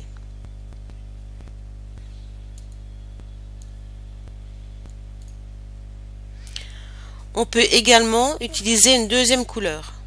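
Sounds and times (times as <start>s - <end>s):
electrical hum: 0.0s - 10.0s
computer mouse clicks: 0.1s - 5.4s.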